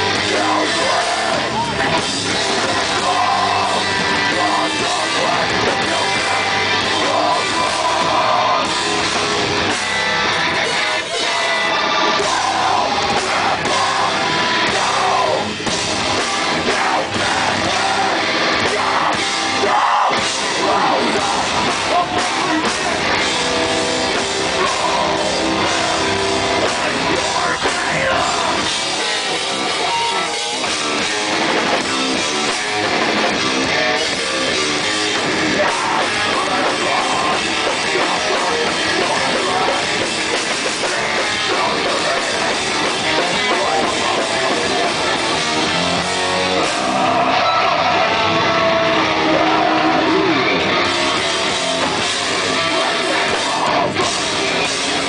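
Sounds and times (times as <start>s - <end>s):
bass guitar: 0.0s - 55.0s
drum kit: 0.0s - 55.0s
electric guitar: 0.0s - 55.0s.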